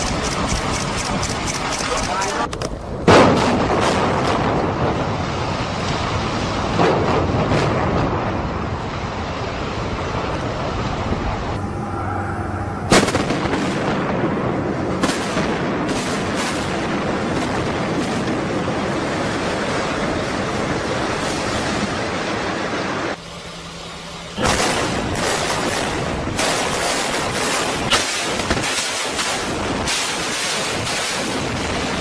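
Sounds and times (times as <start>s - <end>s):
rumble of collapsing building: 0.0s - 23.2s, 24.0s - 32.0s
sharp cracks of detonating charges: 3.0s - 8.7s, 12.8s - 19.9s, 24.3s - 32.0s
sharp explosive blast: 3.0s - 8.8s, 12.8s - 23.1s, 24.4s - 32.0s.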